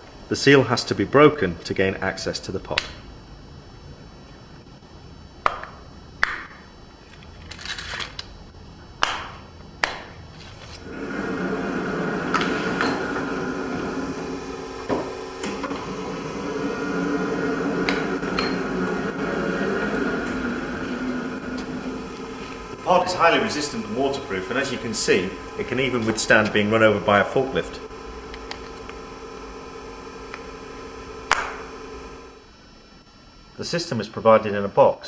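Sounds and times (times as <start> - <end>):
forklift truck running: 10.8 - 32.5.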